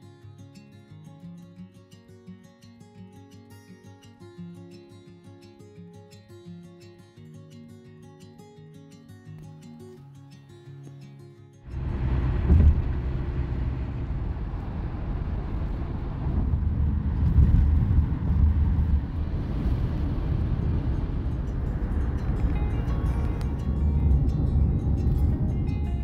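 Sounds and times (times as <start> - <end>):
road and tyre noise in car: 11.7 - 26.0.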